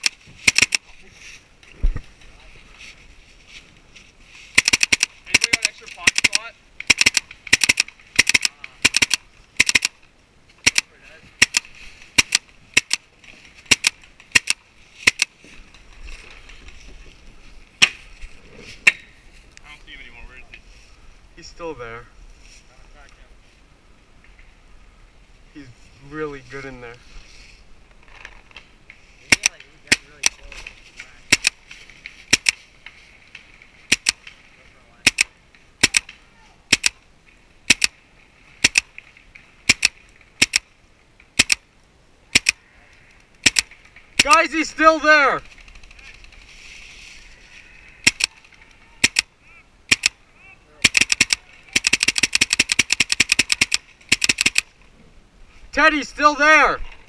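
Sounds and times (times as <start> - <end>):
paintball markers firing: 0.0 - 0.9, 4.6 - 10.0, 10.6 - 13.1, 13.7 - 15.3, 31.3 - 31.6, 33.9 - 34.3, 35.0 - 37.0, 37.7 - 38.0, 39.7 - 40.6, 41.4 - 41.6, 42.3 - 42.6, 43.4 - 44.4, 48.0 - 48.4, 49.0 - 49.3, 49.9 - 50.2, 50.8 - 54.7.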